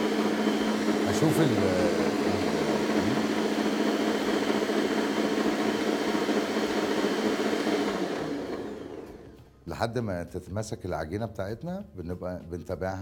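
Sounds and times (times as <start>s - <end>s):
stand mixer motor kneading dough: 0.0s - 9.4s.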